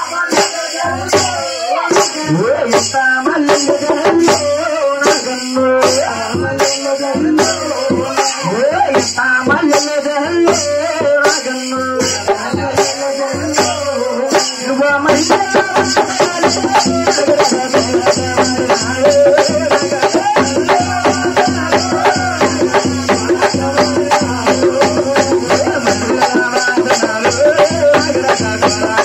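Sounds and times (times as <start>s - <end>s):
person singing a melody: 0.0s - 29.0s
shaken rattle beat: 0.0s - 29.0s.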